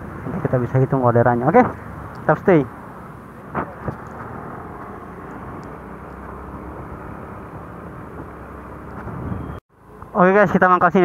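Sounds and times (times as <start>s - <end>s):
road noise: 0.0s - 11.0s
scooter engine hum: 1.8s - 10.4s.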